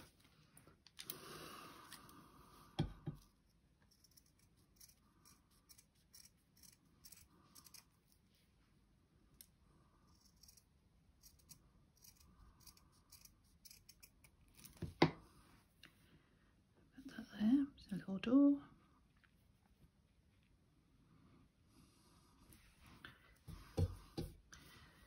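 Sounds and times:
scissors cutting cloth: 3.9s - 8.0s, 10.1s - 14.9s.

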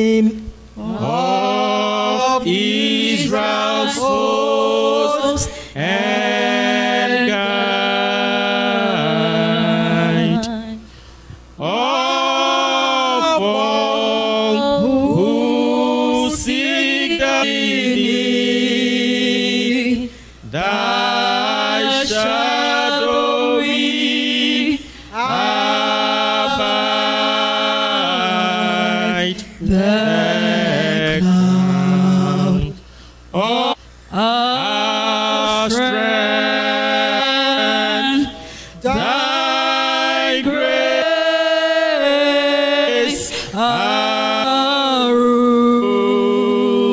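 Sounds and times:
woman singing a hymn: 8.6s - 10.8s.

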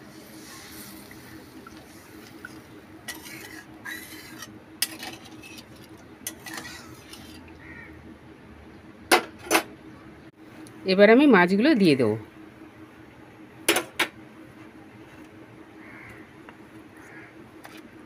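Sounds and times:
spatula stirring gravy in pan: 0.4s - 7.5s.

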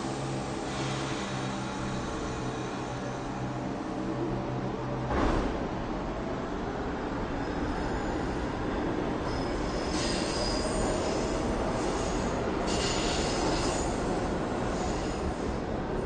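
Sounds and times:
subway train rumble: 0.0s - 16.0s
high-pitched wheel squeal: 9.3s - 13.8s.

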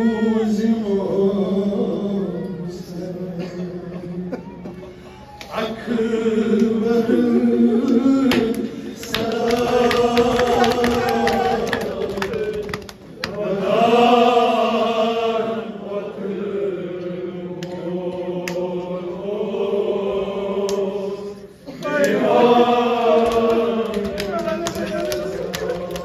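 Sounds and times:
men joining in chant: 8.0s - 14.1s, 21.7s - 26.0s.

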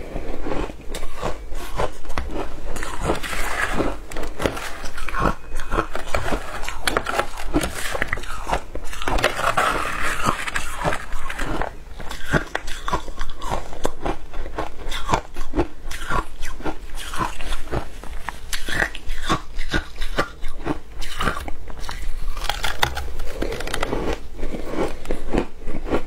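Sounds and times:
ice crunching being chewed: 0.0s - 26.0s
metal spoon scraping ice: 2.7s - 13.0s.

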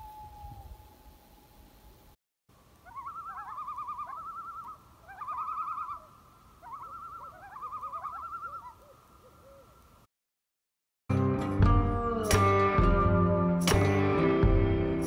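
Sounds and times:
loon tremolo call: 2.8s - 8.9s.

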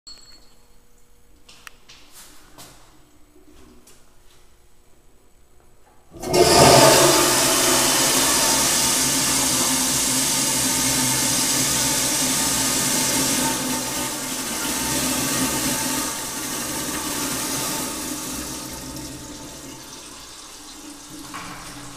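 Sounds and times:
toilet flushing: 6.1s - 21.9s.

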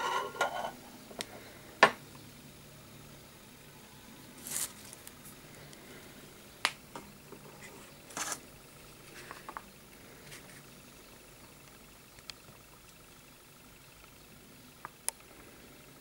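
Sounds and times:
faint ticks: 14.8s - 15.3s.

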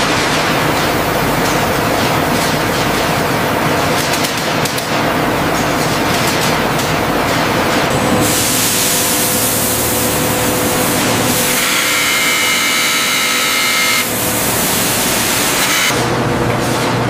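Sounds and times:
milling machine high whine: 7.0s - 16.3s.

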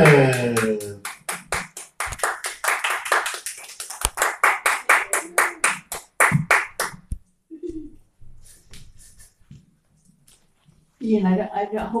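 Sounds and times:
audience clapping: 0.0s - 7.1s.

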